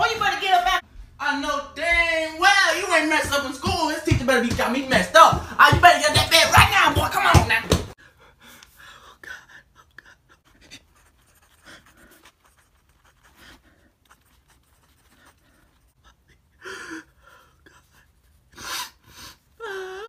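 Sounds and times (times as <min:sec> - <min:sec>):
pen scratching on paper: 0:10.8 - 0:15.9.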